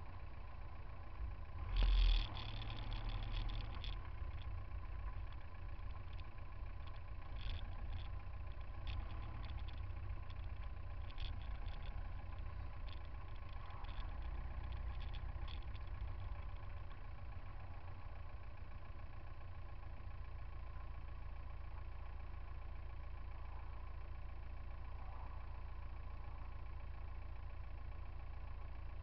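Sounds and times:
car engines idling: 0:00.0 - 0:29.0.

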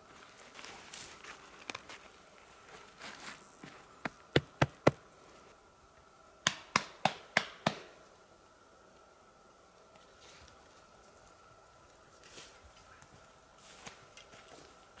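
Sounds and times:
faint steady high tone: 0:03.0 - 0:04.0.

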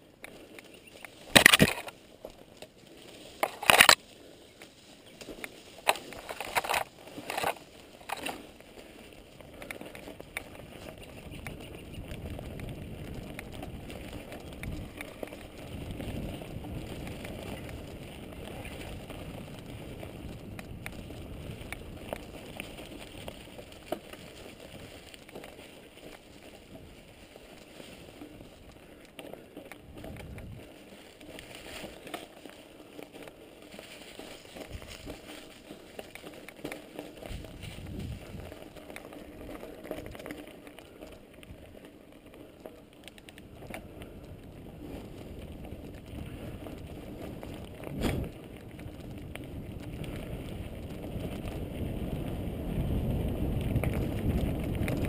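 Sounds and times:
bike rattling over bumps: 0:00.0 - 0:55.0
bike tyres rolling on dirt: 0:00.0 - 0:55.0
wind rumble on microphone: 0:09.2 - 0:29.0, 0:29.8 - 0:32.0, 0:33.1 - 0:36.3, 0:37.0 - 0:41.9, 0:43.3 - 0:55.0.

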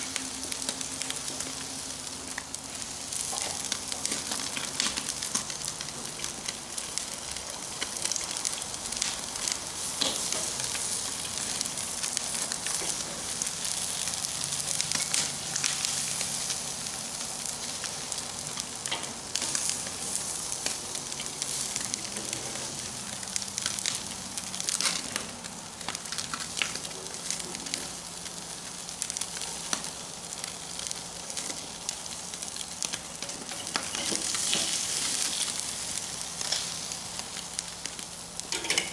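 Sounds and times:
fish sizzling on a grill: 0:00.0 - 0:38.9
pops and crackles: 0:03.2 - 0:13.1, 0:23.2 - 0:28.4.

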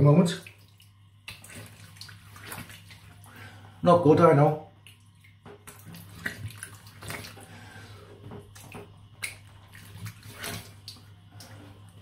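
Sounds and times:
water splashing and dripping: 0:00.0 - 0:03.6, 0:04.7 - 0:12.0
steady low hum: 0:00.0 - 0:12.0.

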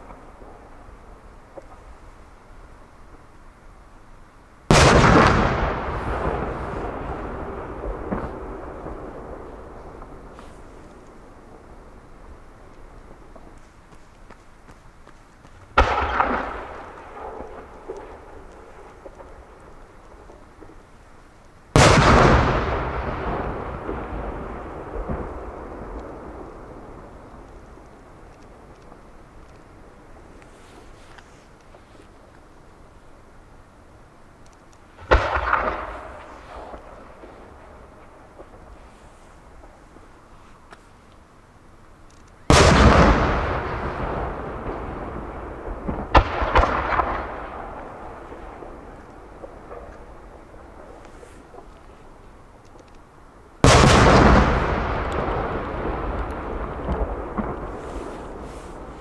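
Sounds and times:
firework cracks: 0:04.6 - 0:14.3, 0:15.4 - 0:32.5, 0:34.4 - 0:41.2, 0:42.1 - 0:59.0
firework boom rumbling: 0:04.7 - 0:10.8
rolling echo: 0:04.7 - 0:14.0, 0:15.4 - 0:20.9, 0:21.8 - 0:30.6, 0:35.0 - 0:40.1, 0:42.5 - 0:52.8, 0:53.6 - 0:59.0.

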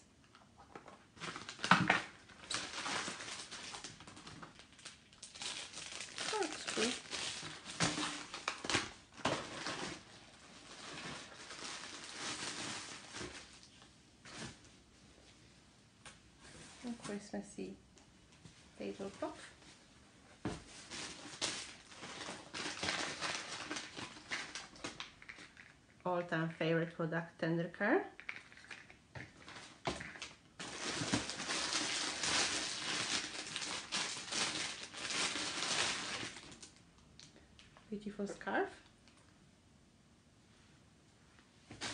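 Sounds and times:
packaging rustling: 0:01.1 - 0:13.7, 0:20.5 - 0:25.8, 0:28.2 - 0:36.8.

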